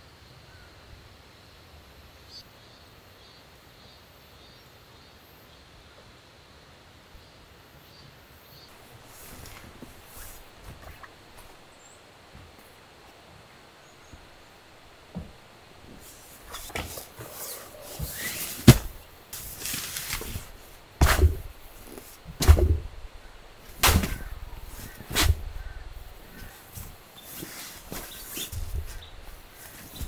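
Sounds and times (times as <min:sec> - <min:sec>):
fabric rustling: 0:08.7 - 0:13.2, 0:14.0 - 0:30.0
dull thumps on sleeping mat: 0:15.1 - 0:23.0.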